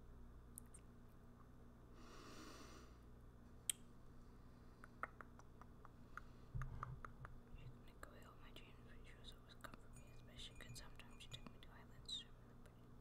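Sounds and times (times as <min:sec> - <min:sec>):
soft hiss: 0:00.0 - 0:13.0
mouth clicks and lip sounds: 0:04.8 - 0:07.8.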